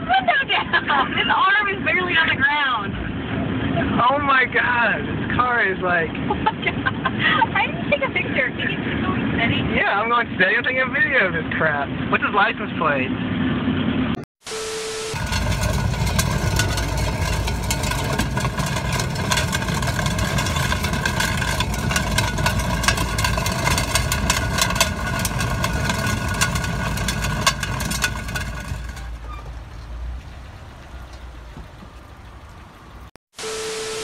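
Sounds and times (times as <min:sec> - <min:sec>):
road and engine rumble: 0:00.0 - 0:34.0
steady whine: 0:13.7 - 0:29.1, 0:33.4 - 0:34.0
continuous wheel clatter: 0:15.1 - 0:33.1.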